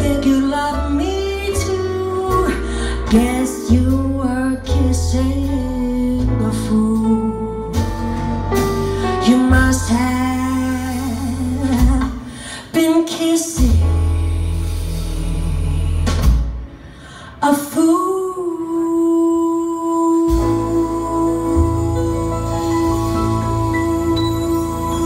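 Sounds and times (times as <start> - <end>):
upright bass low notes: 0.0 - 12.4, 13.6 - 16.8, 20.2 - 25.0
small live band: 0.0 - 25.0
woman singing slow notes: 17.5 - 22.9.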